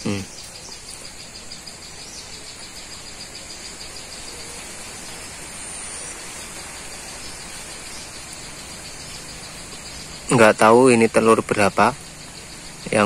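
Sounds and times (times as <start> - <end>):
background hiss: 0.0 - 13.0
insects trilling: 0.0 - 13.0.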